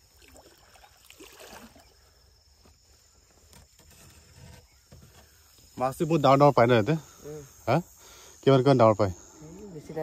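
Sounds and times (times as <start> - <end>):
water swishing and splashing: 0.0 - 2.0
insect hum: 0.0 - 10.0.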